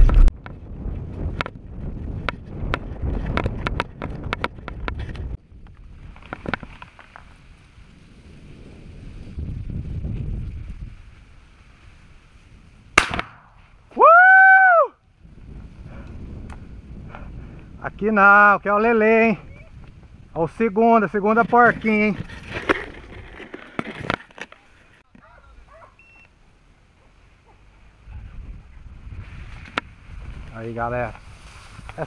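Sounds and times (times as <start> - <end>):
sharp crack: 12.9 - 13.8.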